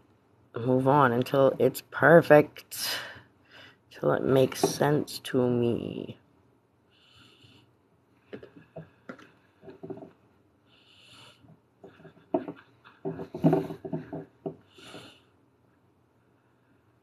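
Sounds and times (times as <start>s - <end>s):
breathy sniffs: 14.7s - 15.2s.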